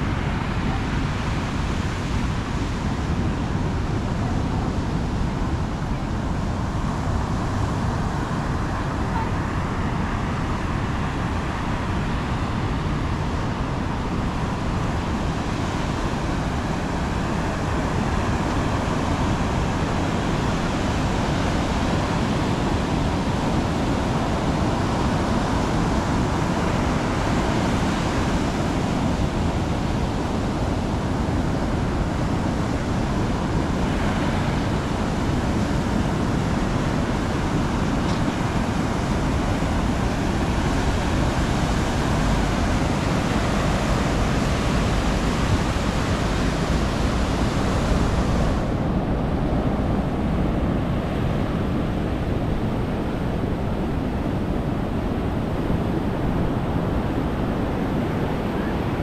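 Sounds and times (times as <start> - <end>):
wind: 0.0 - 59.0
road traffic: 32.0 - 59.0.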